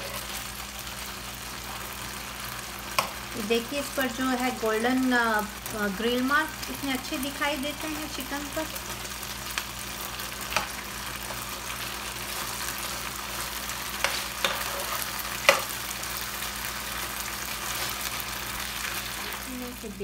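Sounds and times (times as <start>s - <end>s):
chicken sizzling in a frying pan: 0.0s - 20.0s.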